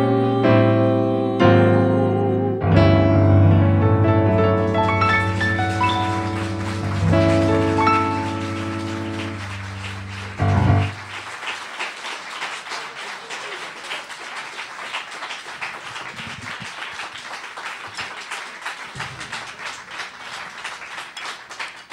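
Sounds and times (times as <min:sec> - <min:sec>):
jazz band final chord: 0:02.5 - 0:11.2
audience applauding: 0:04.3 - 0:21.9.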